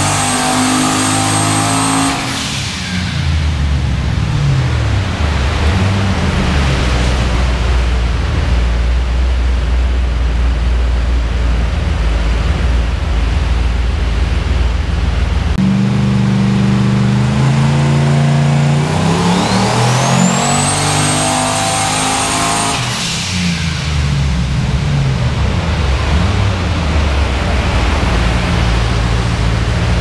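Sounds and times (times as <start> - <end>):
engine revving: 0.0 - 8.8, 15.5 - 30.0
steady rushing noise: 2.6 - 15.6, 22.9 - 30.0
turbo whine: 10.0 - 21.6.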